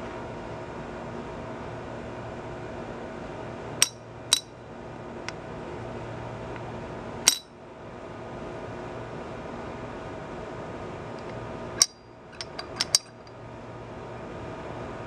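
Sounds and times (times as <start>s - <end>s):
sharp metal clinks: 3.8s - 4.5s, 7.3s - 7.5s, 11.8s - 13.3s.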